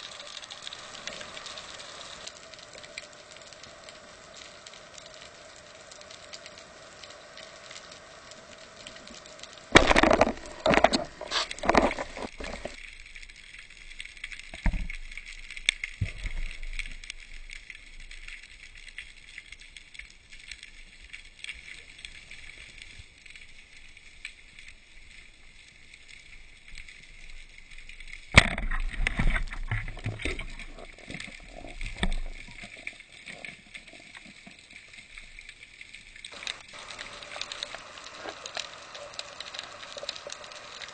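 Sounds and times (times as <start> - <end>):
faint underwater crackling hiss: 0.0 - 40.9
loud water noise: 9.7 - 12.7, 36.3 - 40.9.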